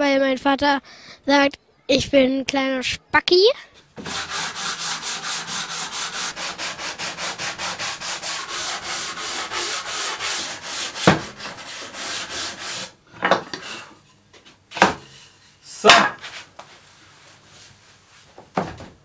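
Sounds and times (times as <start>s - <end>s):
sanding block rasping on wood: 4.0s - 13.0s.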